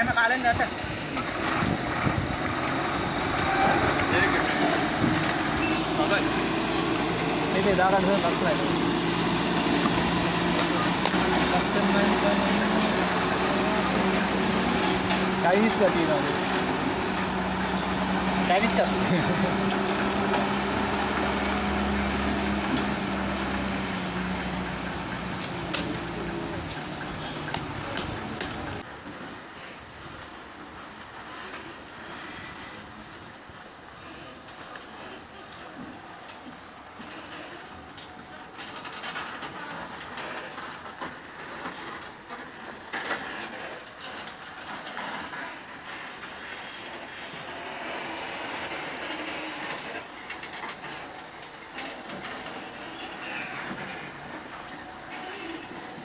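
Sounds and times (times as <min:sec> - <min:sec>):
truck diesel engine running: 0:00.8 - 0:28.8
trailer rattling and knocking: 0:01.3 - 0:28.8.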